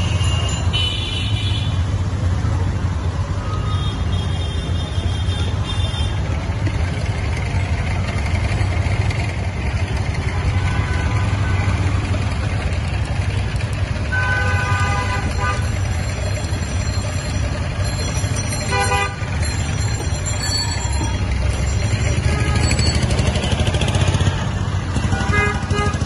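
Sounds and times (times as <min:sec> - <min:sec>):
street traffic: 0:00.0 - 0:26.0
vehicle horn: 0:10.3 - 0:11.8, 0:14.0 - 0:15.7, 0:18.7 - 0:19.2, 0:24.3 - 0:26.0.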